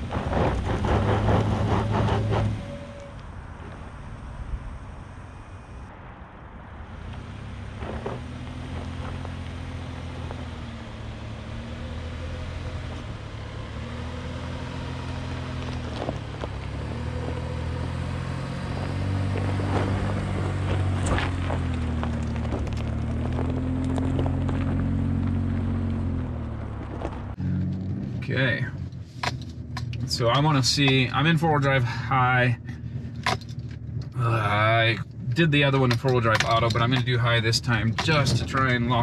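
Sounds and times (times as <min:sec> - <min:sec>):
car engine revving: 0:00.0 - 0:39.0.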